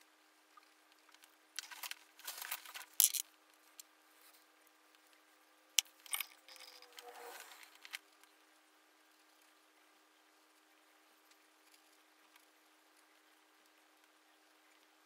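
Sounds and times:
painting supplies rustling and scraping: 1.1s - 5.2s, 5.8s - 8.3s.

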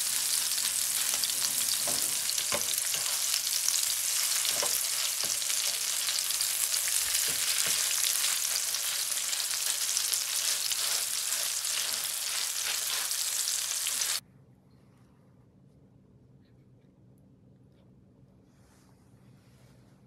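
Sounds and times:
patties sizzling in oil: 0.0s - 14.2s
spatula turning food in pan: 0.0s - 14.2s.

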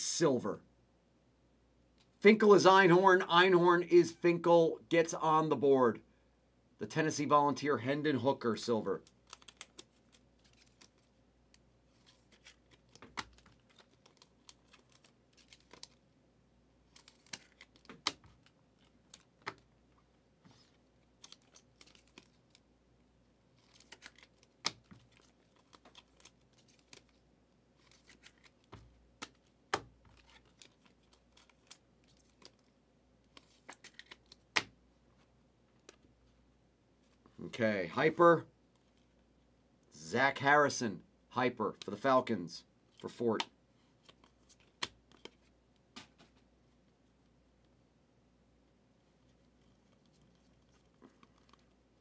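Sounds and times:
cards clicking and tapping: 16.9s - 18.5s.

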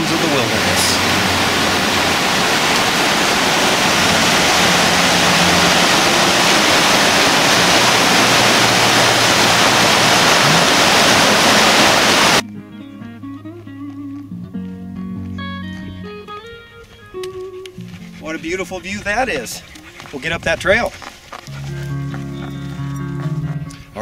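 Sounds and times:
creek rushing over rocks: 0.0s - 12.4s
acoustic guitar music: 3.9s - 11.4s.

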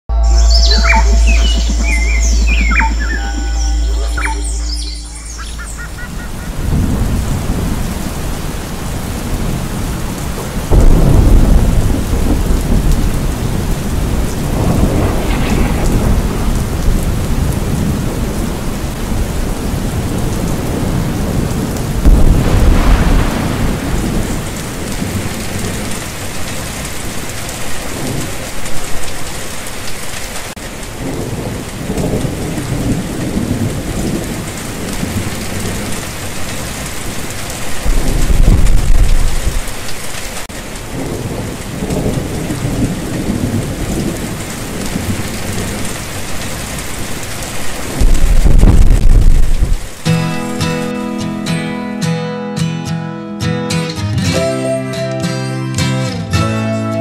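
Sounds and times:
heavy rain: 0.3s - 52.2s
rolling thunder: 5.4s - 29.2s, 31.0s - 50.0s.

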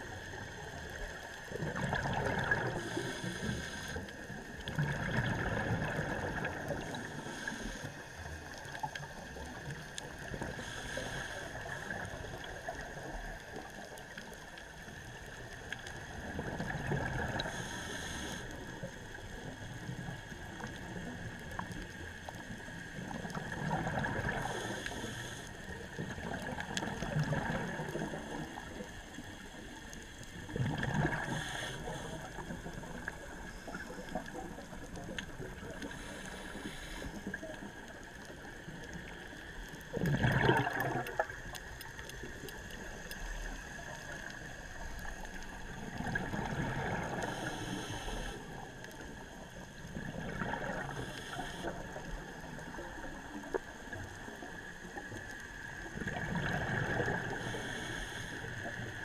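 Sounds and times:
underwater background: 0.0s - 59.0s
exhaled bubbles rushing: 1.5s - 3.2s, 4.6s - 7.2s, 23.0s - 24.6s, 26.0s - 28.7s, 30.5s - 31.7s, 39.8s - 42.7s, 45.3s - 47.5s, 49.9s - 51.1s, 55.9s - 57.4s
breathing through a regulator: 2.2s - 4.5s, 5.7s - 8.3s, 10.2s - 13.0s, 17.1s - 19.5s, 24.0s - 26.4s, 30.1s - 38.3s, 46.7s - 49.7s, 50.5s - 52.8s, 55.8s - 59.0s.

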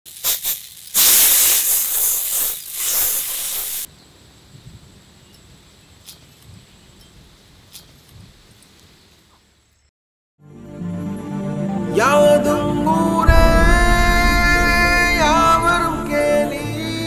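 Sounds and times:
hot pan sizzling: 0.1s - 3.9s.

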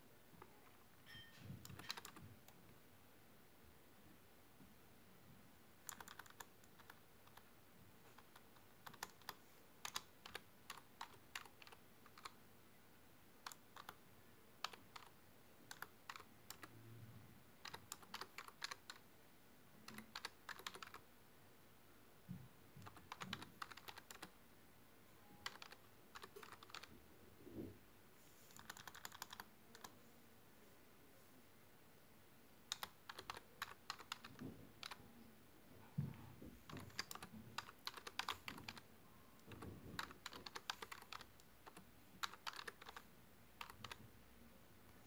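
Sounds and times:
keyboard typing: 0.4s - 2.6s, 5.8s - 12.4s, 13.4s - 14.0s, 14.6s - 16.8s, 17.6s - 19.0s, 19.8s - 21.0s, 22.8s - 24.4s, 25.2s - 27.0s, 28.5s - 30.0s, 32.7s - 35.0s, 36.6s - 44.0s.

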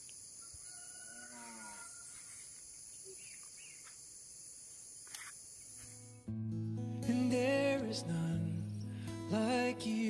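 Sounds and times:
faint bird chirps: 0.0s - 6.1s
insect chorus: 0.0s - 6.2s.

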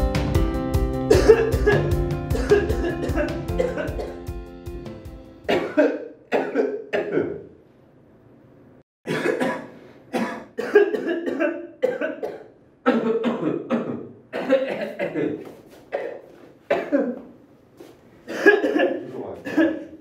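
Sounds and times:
background music: 0.0s - 5.7s
men coughing: 1.1s - 4.3s, 5.5s - 7.5s, 9.0s - 17.3s, 18.3s - 20.0s.

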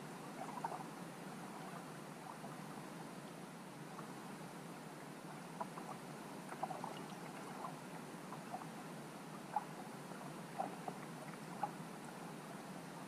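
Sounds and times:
faint underwater clicks: 5.3s - 8.7s.

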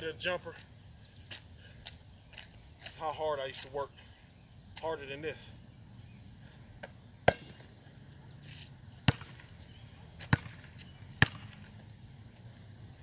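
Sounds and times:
basketball bouncing on asphalt: 6.8s - 7.8s, 8.9s - 12.8s.

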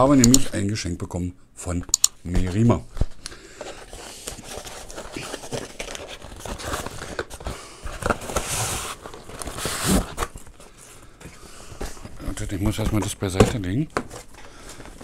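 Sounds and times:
packaging rustling and crinkling: 3.0s - 11.1s.

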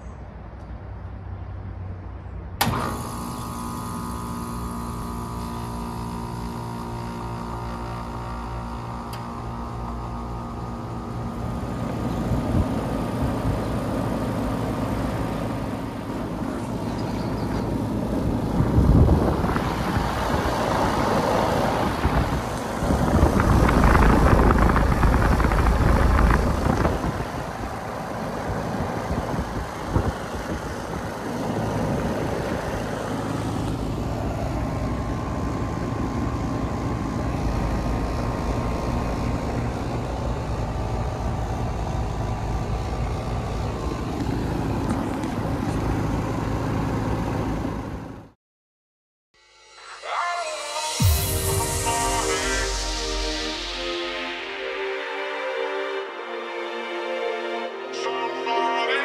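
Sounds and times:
air conditioner unit humming: 2.6s - 48.2s.

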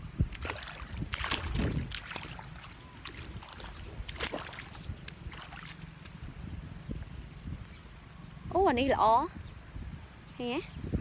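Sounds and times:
feet wading and splashing in water: 0.0s - 6.3s.

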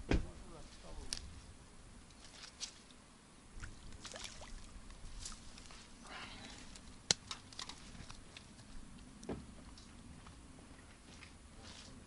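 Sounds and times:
water sloshing: 3.6s - 8.5s.

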